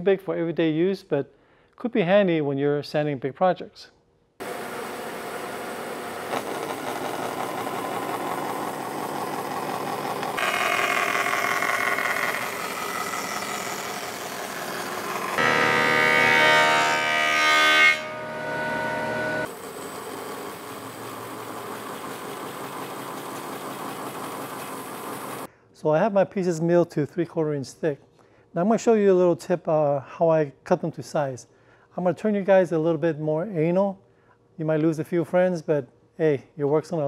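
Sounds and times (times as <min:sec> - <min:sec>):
bandsaw cutting board: 0:04.4 - 0:25.5
wood planer whining: 0:04.4 - 0:25.5.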